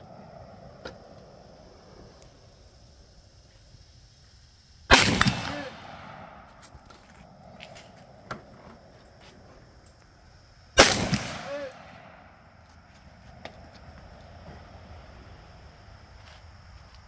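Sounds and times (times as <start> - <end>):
rifle shot: 4.9 - 6.6, 10.8 - 12.3.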